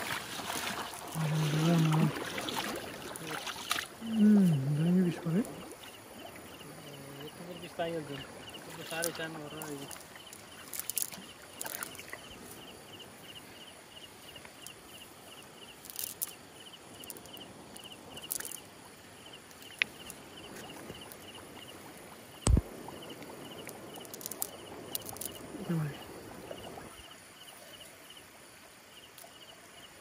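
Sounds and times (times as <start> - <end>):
wet cast net rustling: 0.0 - 4.2, 8.7 - 12.3
insect chirping: 0.0 - 30.0
sharp thud: 22.4 - 22.7.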